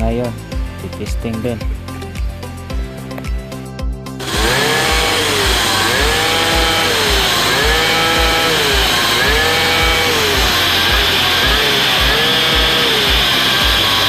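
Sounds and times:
background music with beat: 0.0 - 14.0
small two-stroke engine revving: 4.2 - 14.0.

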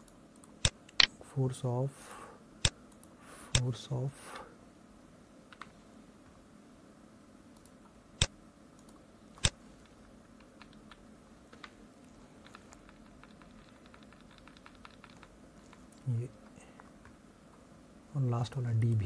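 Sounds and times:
computer mouse clicking: 5.5 - 5.7, 7.6 - 11.8, 12.4 - 16.1.

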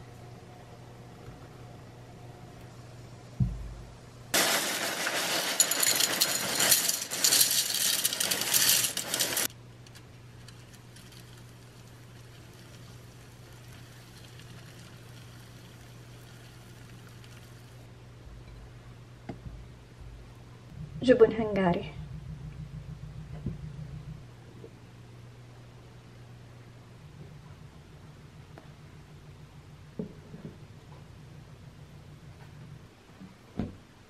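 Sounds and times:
cornflakes pouring into bowl: 4.4 - 9.5, 11.0 - 17.8.

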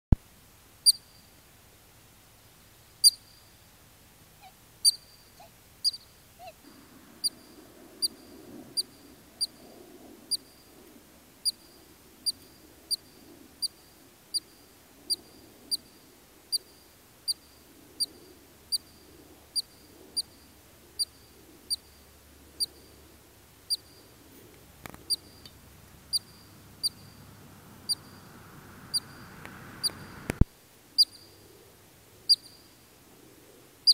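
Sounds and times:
ground squirrel chirping: 0.8 - 1.2, 3.0 - 3.6, 4.4 - 9.6, 10.3 - 10.6, 11.4 - 14.5, 15.1 - 17.4, 18.0 - 23.0, 23.6 - 24.2, 24.9 - 30.4, 31.0 - 31.5, 32.2 - 32.7.

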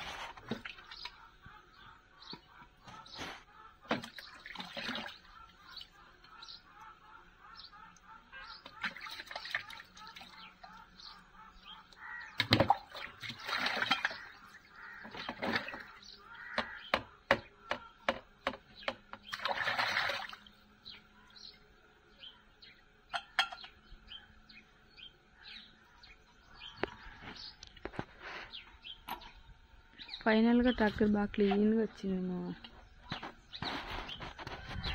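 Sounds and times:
birds chirping: 0.2 - 34.9
water splashing in plastic tub: 3.9 - 5.8, 8.6 - 10.7, 12.2 - 16.0, 19.2 - 20.5.

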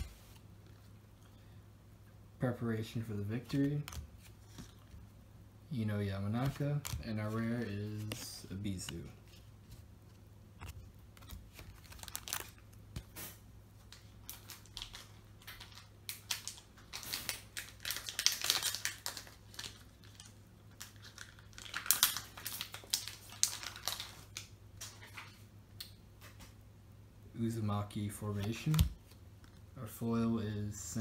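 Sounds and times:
foil wrapper crinkling and tearing: 11.2 - 12.8, 13.9 - 24.5.

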